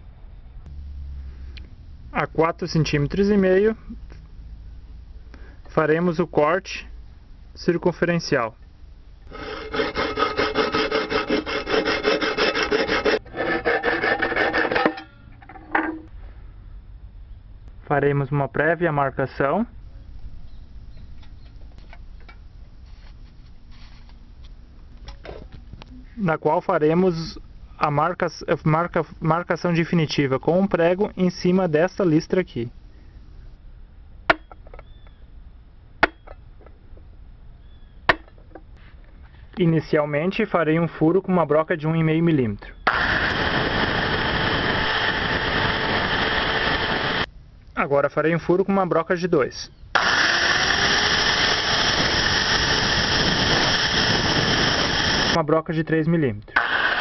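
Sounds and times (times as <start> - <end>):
hacksaw sawing through metal can: 9.3 - 15.1.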